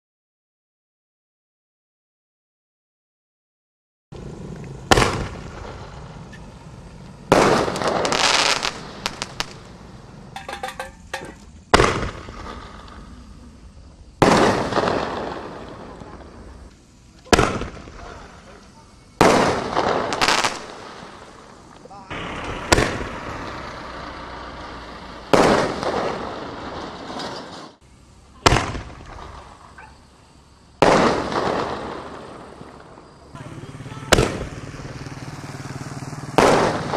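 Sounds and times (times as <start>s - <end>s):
crackling firework stars: 4.2s - 36.9s
firework shell bursting: 4.6s - 27.8s, 28.4s - 29.8s
firework shell launch bang: 4.9s - 6.5s, 10.3s - 13.0s, 22.1s - 23.6s, 25.3s - 27.8s, 28.4s - 29.6s.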